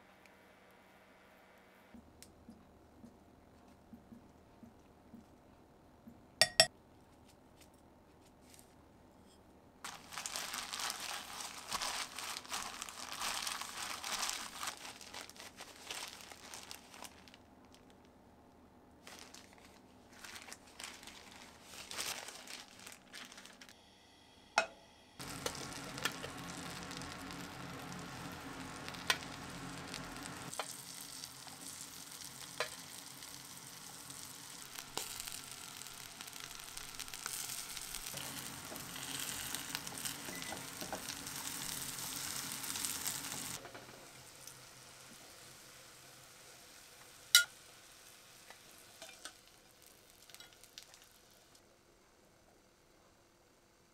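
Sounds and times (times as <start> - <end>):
food sizzling in a pan: 25.2 - 51.6.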